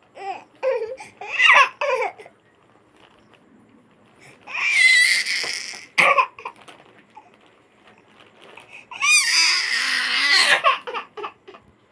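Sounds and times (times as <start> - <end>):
toddler crying: 0.2 - 2.3, 4.5 - 6.5, 8.9 - 11.6.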